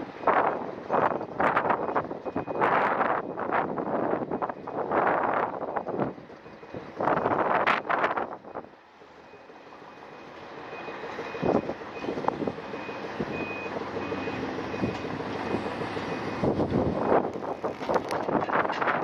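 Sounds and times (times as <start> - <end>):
heavy machine engine: 0.0 - 19.0
reversing alarm beeping: 1.0 - 3.5, 9.2 - 17.2
wind on microphone: 16.4 - 19.0.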